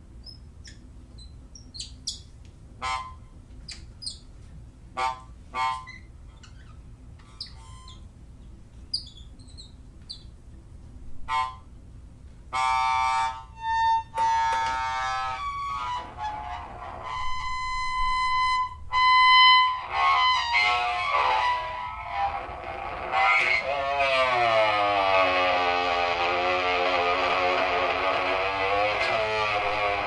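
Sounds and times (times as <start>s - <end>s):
chirping electronic blips: 0.2s - 4.3s, 5.8s - 8.1s, 8.9s - 10.4s
buzzing electronic tones: 12.6s - 30.0s.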